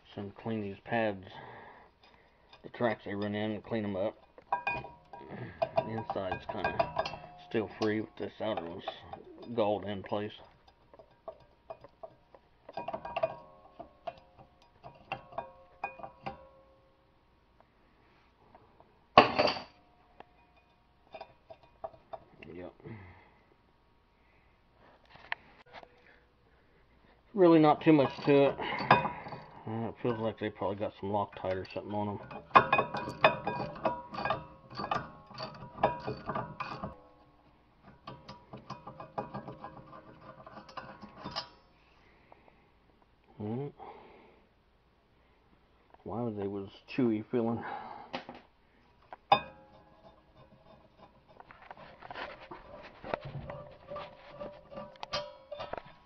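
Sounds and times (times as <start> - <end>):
wrench clinking on metal bolts: 2.0 - 16.7, 27.6 - 41.6, 53.5 - 56.0.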